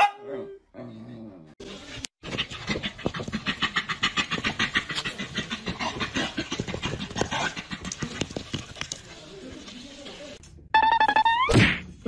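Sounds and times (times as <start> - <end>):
dog panting rapidly: 2.2 - 9.0.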